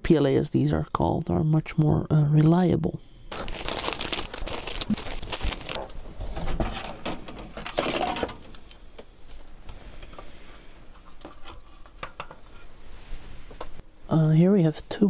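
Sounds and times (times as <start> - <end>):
plastic rustling and crinkling: 3.3 - 6.9.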